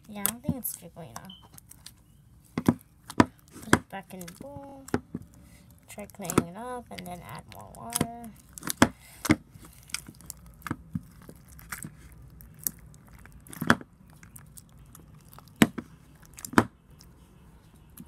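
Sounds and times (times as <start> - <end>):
slime squelching and clicking: 0.0 - 17.2
slime popping: 6.0 - 17.1.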